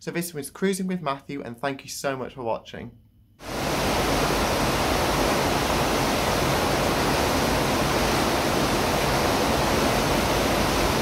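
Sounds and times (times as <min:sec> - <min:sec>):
steady rushing noise: 0:03.4 - 0:11.0.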